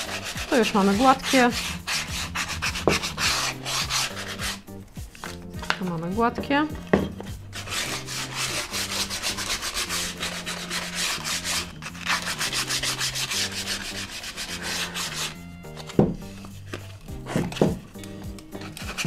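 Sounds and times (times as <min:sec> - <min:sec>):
sandpaper rubbing on wood: 0:00.0 - 0:04.6, 0:07.1 - 0:15.4, 0:18.6 - 0:19.0
wooden knock: 0:05.6 - 0:07.4, 0:15.9 - 0:16.2, 0:17.3 - 0:17.8.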